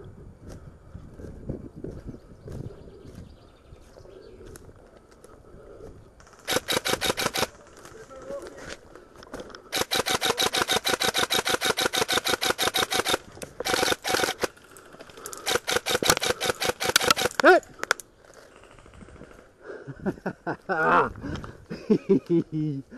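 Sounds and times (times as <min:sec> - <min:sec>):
airsoft rifle firing full auto: 0:06.2 - 0:07.6, 0:09.7 - 0:14.6, 0:15.3 - 0:17.4.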